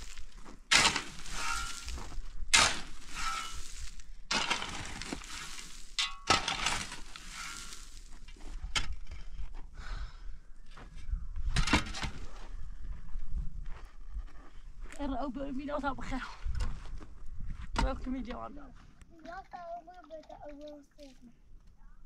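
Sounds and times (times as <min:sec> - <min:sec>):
loud breaking noises: 0:00.0 - 0:08.0.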